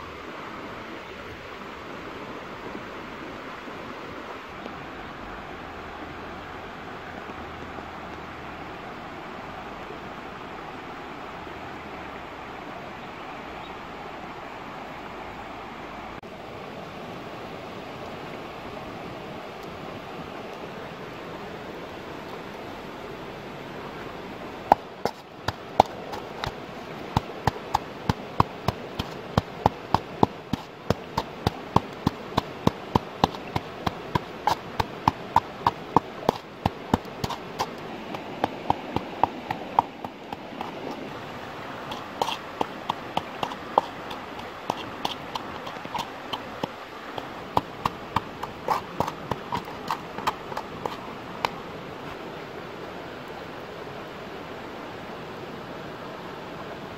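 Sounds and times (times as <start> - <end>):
stone pestle pounding in bowl: 41.9 - 51.0.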